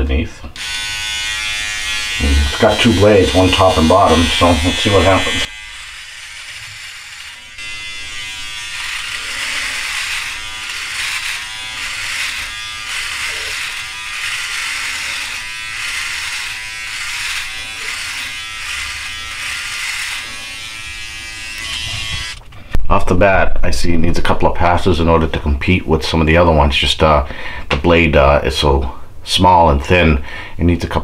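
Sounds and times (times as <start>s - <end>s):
electric shaver buzzing: 0.6s - 22.4s.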